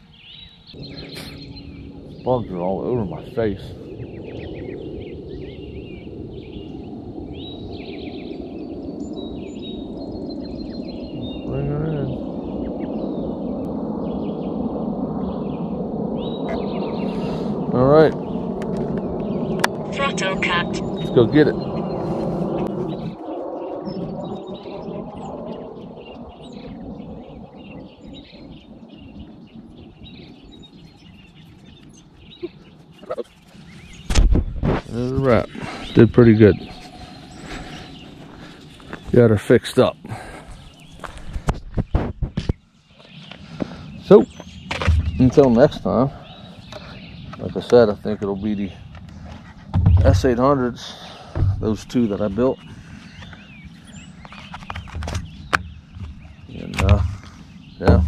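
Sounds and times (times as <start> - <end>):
birds chirping and twittering: 0.0 - 58.0
low background rumble: 0.7 - 39.4.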